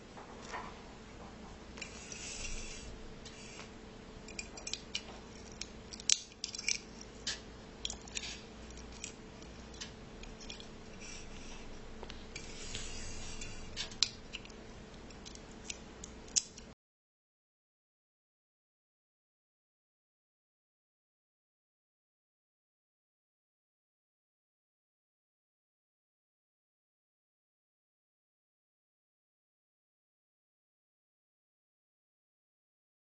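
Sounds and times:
faint steady hum: 0.0 - 16.8
small metallic clicks and taps: 4.3 - 10.7, 13.8 - 16.7
crinkly rubbing and scraping: 6.4 - 15.8.

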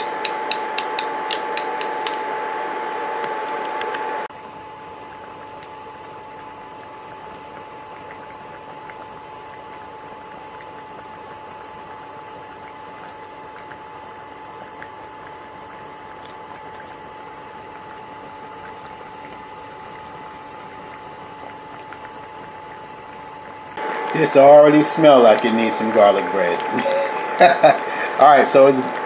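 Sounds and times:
sauce bubbling and popping: 4.3 - 28.2.

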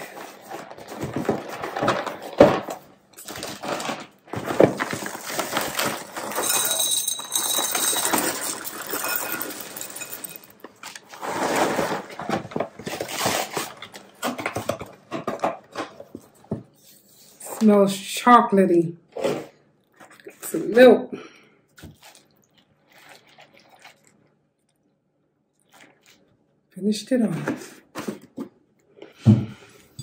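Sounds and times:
cardboard box rustling: 0.0 - 6.2
cereal pouring into glass bowl: 4.7 - 12.0.

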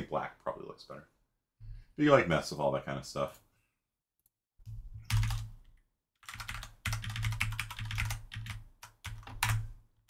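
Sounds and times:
typing on keyboard: 5.0 - 9.7.

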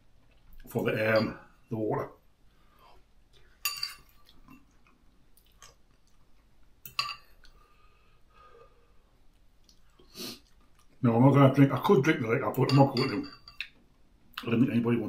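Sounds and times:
quiet chewing: 2.5 - 7.7, 9.2 - 11.0
fork clinking against bowl: 3.6 - 4.2, 6.9 - 7.4, 12.6 - 13.7.

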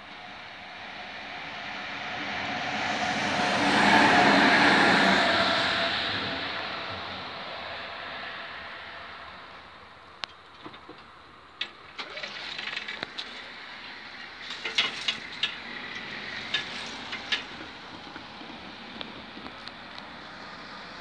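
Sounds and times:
clicks and rattles: 10.2 - 13.6, 14.2 - 18.2.

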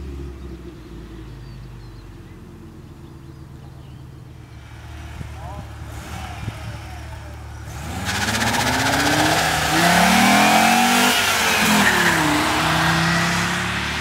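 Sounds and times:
car accelerating past: 4.6 - 14.0.

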